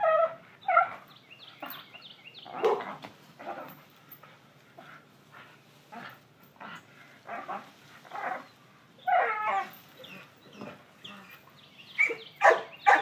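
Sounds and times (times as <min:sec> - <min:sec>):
dog barking: 0:02.6 - 0:02.9, 0:12.0 - 0:13.0.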